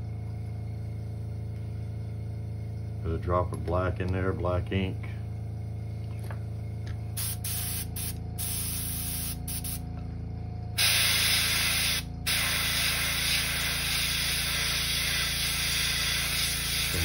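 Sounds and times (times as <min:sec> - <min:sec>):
low hum: 0:00.0 - 0:13.9
airbrush hissing: 0:07.2 - 0:09.8, 0:10.8 - 0:17.0.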